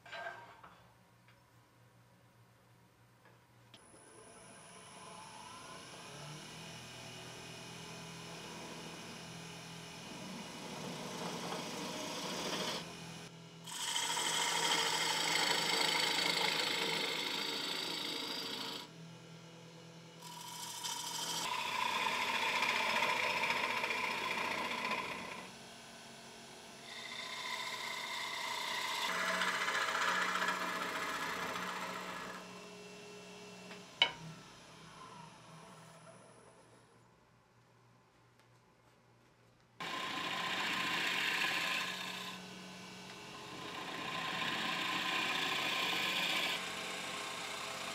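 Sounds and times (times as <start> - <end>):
wood lathe humming: 4.9 - 35.7, 39.8 - 47.9
tool scraping spinning wood: 10.0 - 12.9, 13.7 - 18.9, 20.2 - 25.5, 26.8 - 32.5, 39.8 - 42.5, 43.3 - 47.9.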